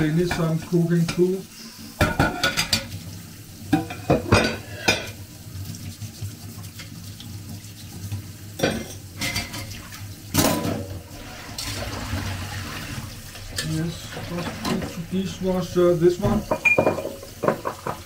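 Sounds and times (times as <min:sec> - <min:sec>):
water running from tap: 0:00.0 - 0:18.0
dishes and cutlery clattering: 0:02.0 - 0:03.0, 0:03.7 - 0:05.2, 0:08.6 - 0:11.8, 0:13.4 - 0:15.1, 0:16.2 - 0:18.0.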